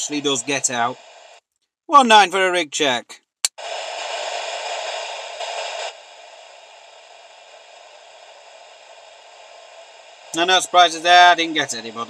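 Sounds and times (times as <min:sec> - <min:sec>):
radio static hiss: 0:00.0 - 0:03.0, 0:03.6 - 0:12.0.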